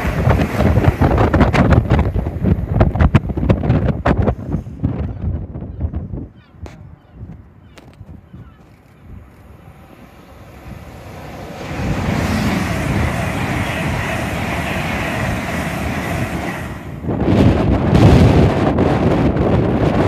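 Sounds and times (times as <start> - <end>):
electric train passing: 0.0 - 3.4, 8.8 - 19.9
wind buffeting microphone: 0.0 - 20.0.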